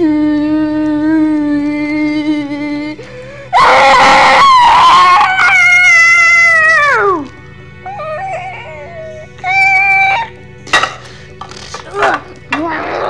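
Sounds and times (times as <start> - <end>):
boy roaring and screaming: 3.5 - 7.3, 11.9 - 13.0.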